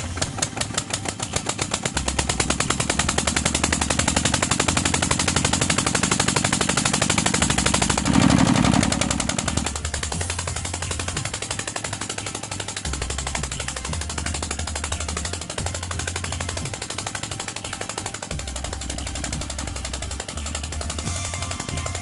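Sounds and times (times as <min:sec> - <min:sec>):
diesel engine chugging: 0:00.0 - 0:22.0.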